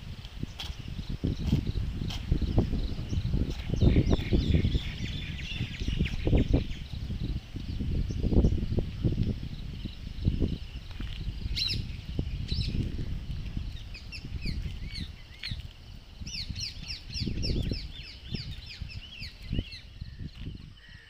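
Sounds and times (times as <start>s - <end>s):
microphone handling noise: 0.0s - 15.6s
low wind rumble: 0.0s - 21.0s
songbirds chirping: 0.0s - 21.0s.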